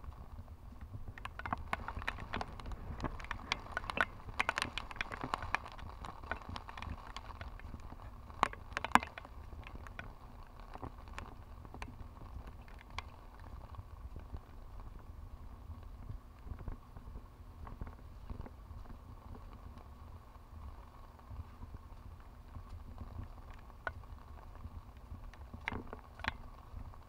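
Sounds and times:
rain drops tapping on camera: 0.0s - 27.0s
wind rumble on microphone: 0.0s - 27.0s.

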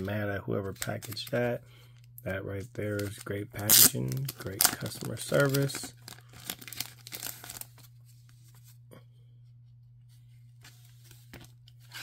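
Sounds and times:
steady low hum: 0.0s - 12.0s
paper wrapping crinkling and tearing: 0.6s - 1.5s, 2.8s - 7.9s.

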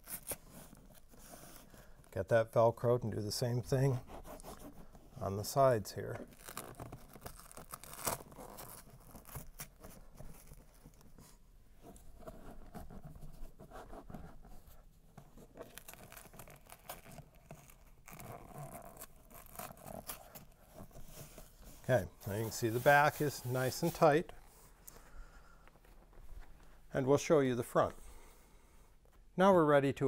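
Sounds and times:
velcro scratching: 0.0s - 2.2s, 3.6s - 25.0s.

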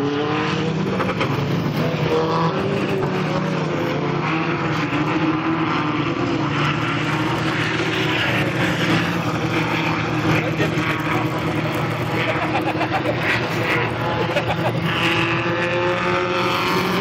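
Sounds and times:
race car engines revving: 0.0s - 17.0s.

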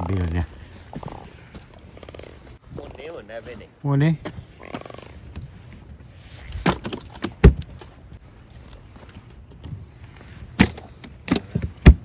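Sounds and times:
sharp knocks and thumps: 10.6s - 12.0s.

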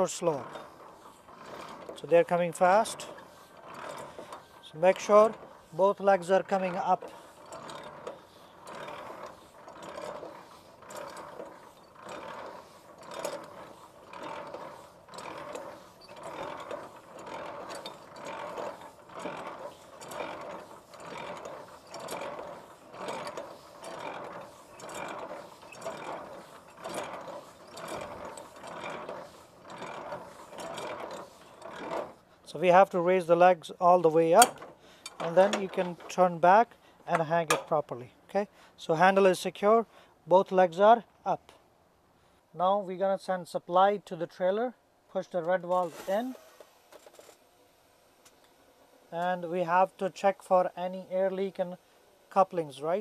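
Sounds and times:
crank ratcheting gear noise: 0.0s - 33.4s, 34.0s - 37.8s.

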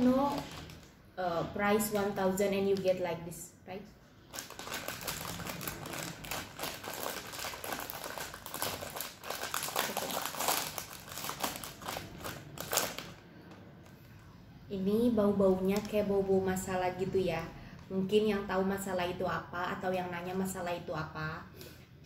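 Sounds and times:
plastic snack bag crinkling: 0.0s - 1.0s, 4.2s - 14.0s, 15.5s - 16.1s.

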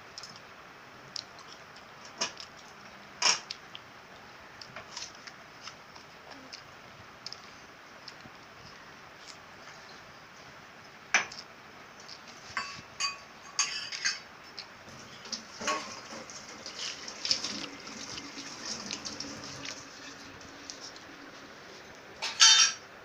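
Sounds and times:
child chewing apple: 0.0s - 10.7s, 11.3s - 12.6s, 14.4s - 15.2s, 16.7s - 22.2s.

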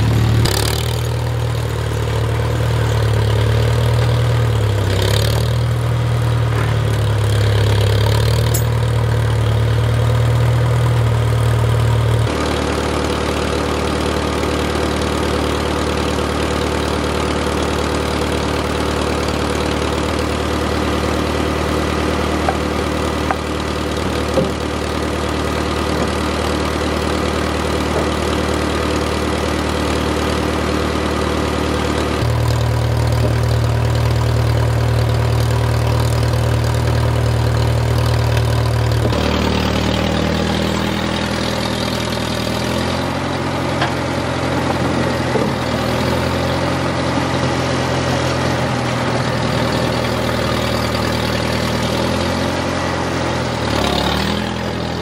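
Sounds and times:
old tractor engine running: 0.0s - 55.0s.

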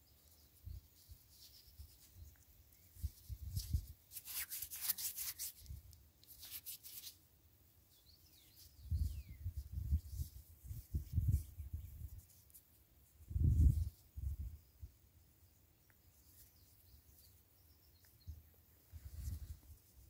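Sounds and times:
scratchy rubbing on microphone: 3.0s - 7.2s, 8.9s - 12.6s, 18.9s - 20.0s.

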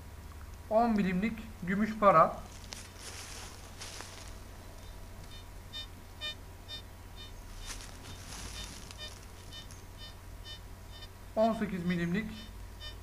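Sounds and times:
metal detector high beeps: 5.3s - 7.8s, 8.5s - 11.1s, 12.4s - 13.0s.

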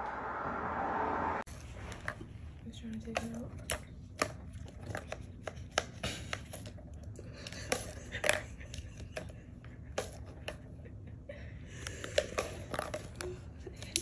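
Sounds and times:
paws tapping plastic toy: 2.9s - 10.8s, 11.8s - 14.0s.

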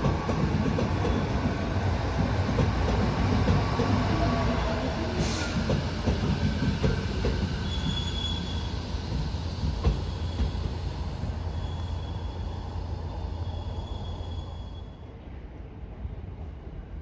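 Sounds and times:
train wheels rumbling and clacking: 0.0s - 13.0s
wheel squeals: 7.6s - 8.8s, 9.9s - 10.7s, 11.5s - 12.7s, 13.3s - 15.0s.

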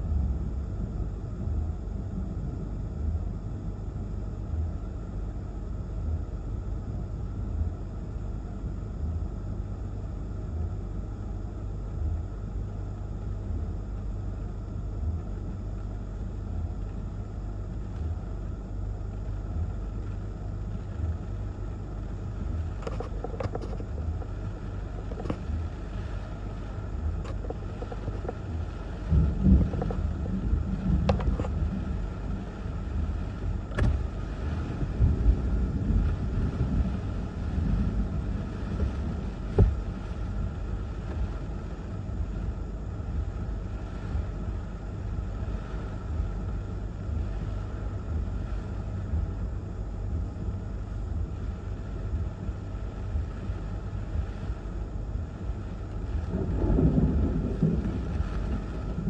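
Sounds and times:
sharp ticks of rain: 14.7s - 59.0s
wind buffeting a car: 19.0s - 59.0s.

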